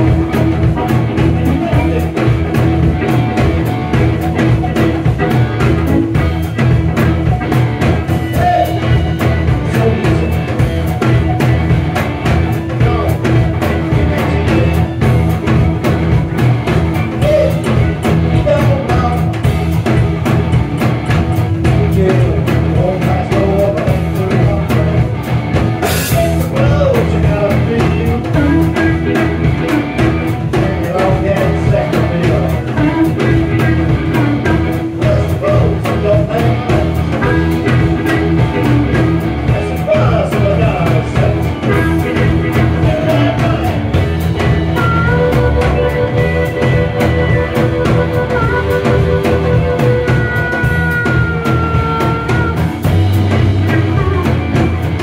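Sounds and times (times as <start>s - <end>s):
live rock band playing: 0.0s - 55.0s
person singing: 7.9s - 11.6s, 12.3s - 15.4s, 17.0s - 19.7s, 21.6s - 55.0s.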